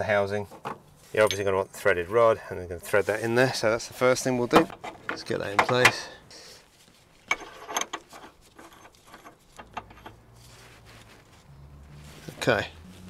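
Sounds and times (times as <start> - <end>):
metal scraping: 6.8 - 13.0.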